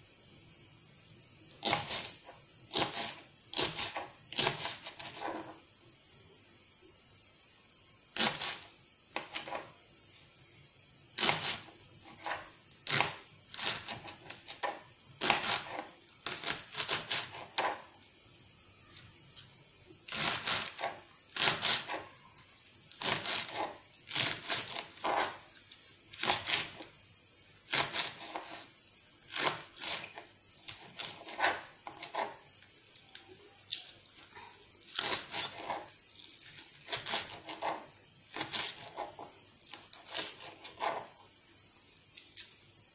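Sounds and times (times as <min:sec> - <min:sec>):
steady high hiss: 0:00.0 - 0:14.0
knife chopping on plastic board: 0:01.6 - 0:05.5, 0:11.2 - 0:17.8.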